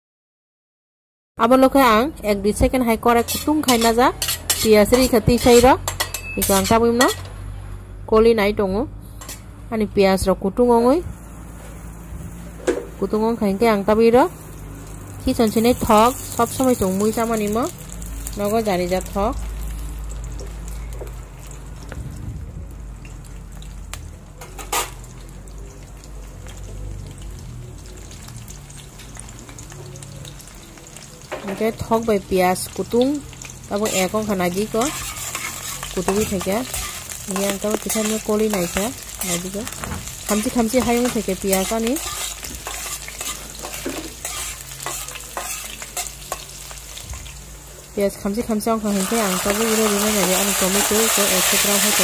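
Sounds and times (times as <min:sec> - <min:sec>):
onions sizzling in oil: 0:03.1 - 0:07.4, 0:11.2 - 0:22.0, 0:22.7 - 0:52.0
metal utensil scraping a wok: 0:03.1 - 0:07.5, 0:09.0 - 0:09.5, 0:24.4 - 0:25.0, 0:33.4 - 0:47.3, 0:48.9 - 0:52.0.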